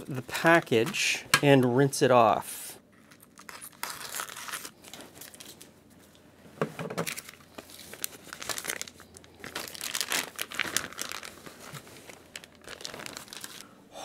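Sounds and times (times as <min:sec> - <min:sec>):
plastic bag crinkling: 0:02.9 - 0:05.7, 0:07.0 - 0:13.8.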